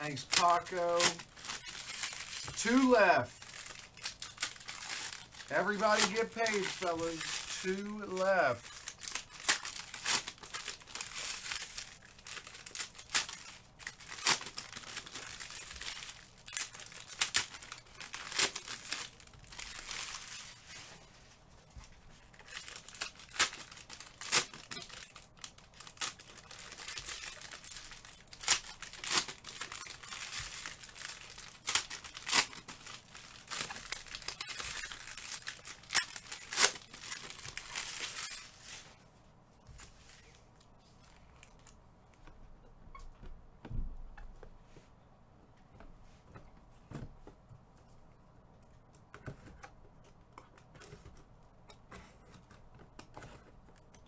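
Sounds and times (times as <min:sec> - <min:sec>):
packaging crinkling and tearing: 0:00.0 - 0:20.9, 0:22.2 - 0:39.0.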